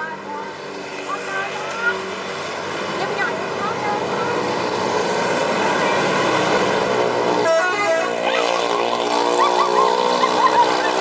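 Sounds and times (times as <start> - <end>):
bus engine passing: 0.0 - 11.0
multi-tone bus horn blast: 7.3 - 9.6.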